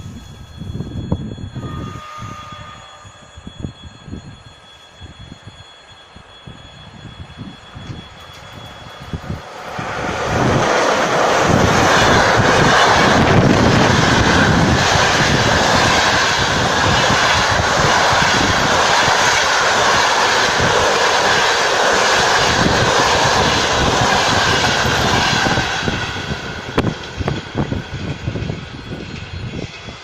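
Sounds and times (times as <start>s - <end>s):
locomotive rush and rumble: 0.0s - 30.0s
passenger coaches on rails: 0.0s - 30.0s.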